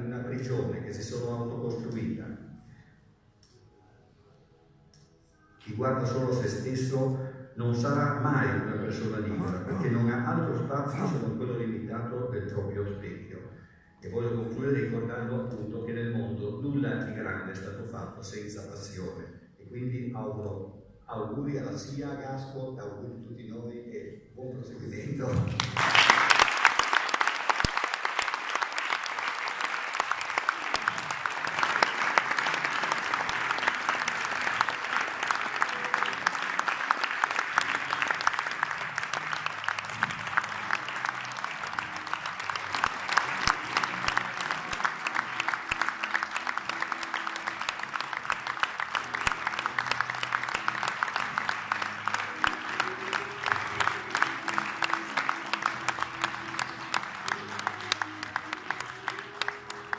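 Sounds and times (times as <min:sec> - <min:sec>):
music: 0:00.0 - 0:59.9
audience applause: 0:25.5 - 0:59.9.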